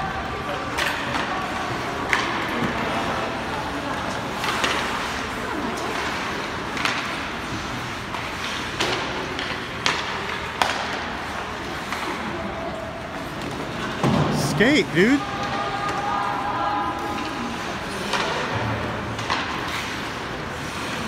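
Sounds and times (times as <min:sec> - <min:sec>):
hockey sticks and puck clacking: 0:00.0 - 0:21.0
ice rink noise: 0:00.0 - 0:21.0.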